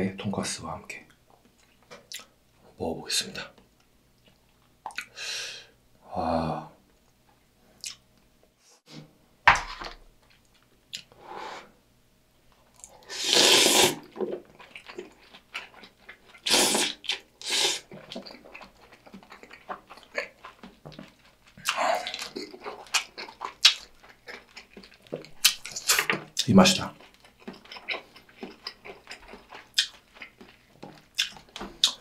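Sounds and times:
wet chewing and smacking: 1.4 - 2.3, 13.9 - 32.0.

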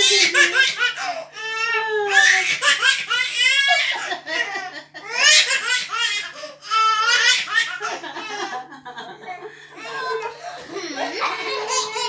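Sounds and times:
baby laughing: 0.0 - 8.5, 9.8 - 12.0
people laughing: 3.7 - 5.3, 7.6 - 12.0.

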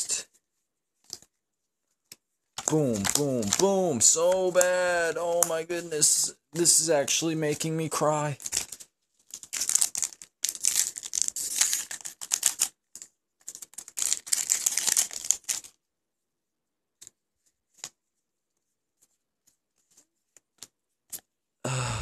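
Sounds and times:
foil wrapper crackling: 2.6 - 6.8, 8.3 - 12.8, 13.5 - 15.8.

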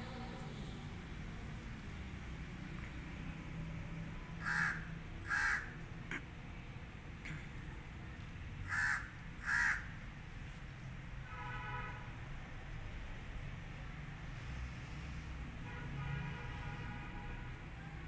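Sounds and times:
crow cawing: 4.4 - 5.8, 8.7 - 9.9.

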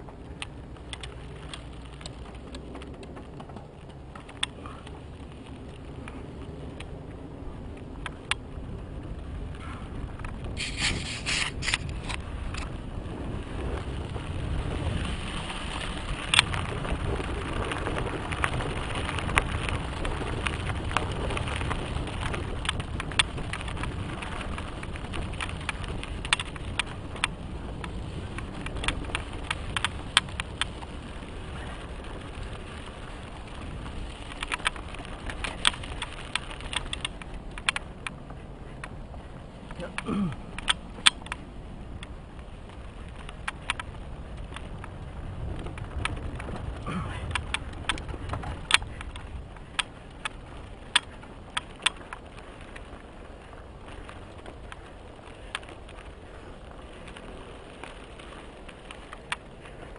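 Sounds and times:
bike rattling and clicking: 0.0 - 59.9
bike tyres rolling on dirt: 0.0 - 59.9
wind on microphone: 0.0 - 59.9.

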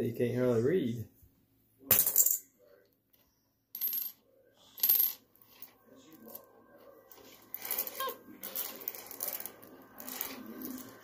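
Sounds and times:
coins clinking on wooden table: 1.9 - 2.4, 3.7 - 4.2, 4.8 - 6.4, 7.1 - 11.0
coins sliding and rattling: 7.1 - 11.0.

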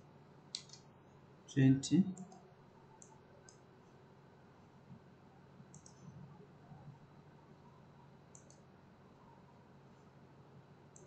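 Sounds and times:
low room hum: 0.0 - 11.0
computer mouse clicks: 0.5 - 0.8, 2.1 - 2.4, 3.0 - 3.7, 5.7 - 6.1, 8.3 - 8.7.

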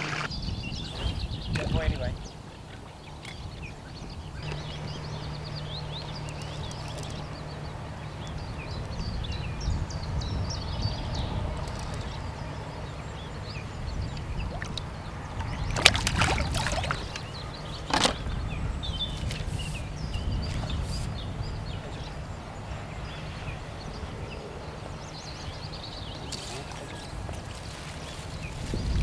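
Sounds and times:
birds chirping: 0.0 - 29.0
steady low rumble: 3.5 - 26.3.

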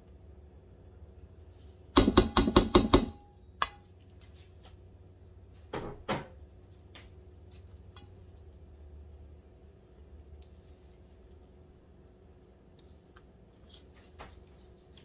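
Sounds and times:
spatula knocking on bowls: 2.0 - 3.8.

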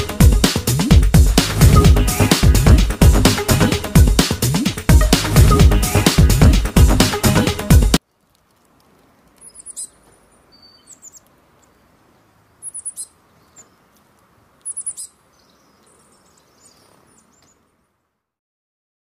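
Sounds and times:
faint outdoor background hiss: 0.0 - 18.4
songbirds chirping: 8.0 - 18.3.

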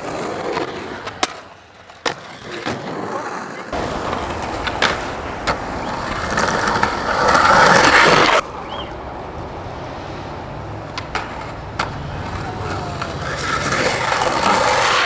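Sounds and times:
skateboard wheels on concrete: 0.0 - 15.0
street background: 0.0 - 15.0.

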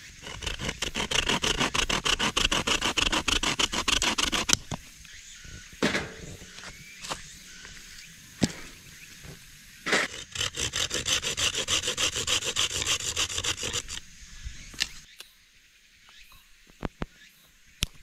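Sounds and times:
saw cutting branch: 0.0 - 5.1, 5.7 - 14.1.

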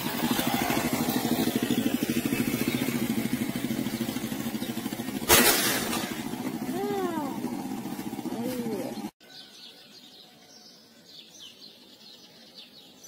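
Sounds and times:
engine running with fast pulsing beat: 0.0 - 9.2
rifle shot: 5.2 - 6.2
bird chirps: 8.3 - 13.0.

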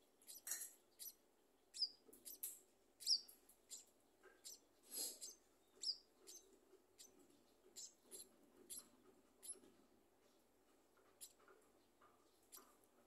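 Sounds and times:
nestlings begging cheeps: 0.2 - 9.6.

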